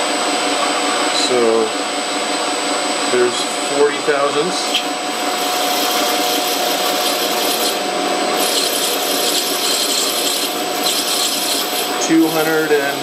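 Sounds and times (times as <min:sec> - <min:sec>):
steady machine tone: 0:00.0 - 0:13.0
lathe tool scraping metal: 0:04.6 - 0:13.0.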